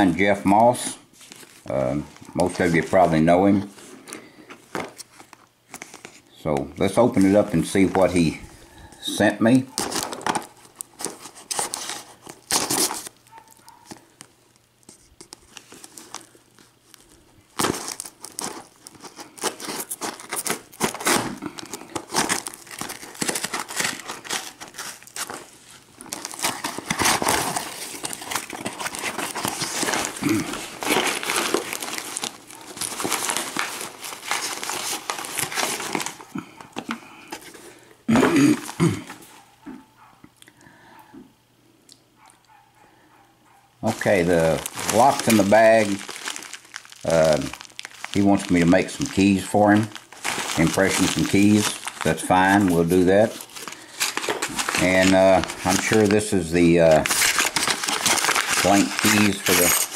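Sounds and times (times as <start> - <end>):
paper crumpling and rustling: 0.7 - 8.4, 9.4 - 37.7, 43.8 - 59.9.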